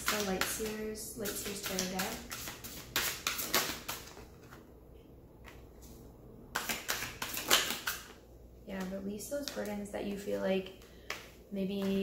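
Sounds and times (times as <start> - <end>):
cards being shuffled: 0.0 - 4.7, 6.6 - 8.1.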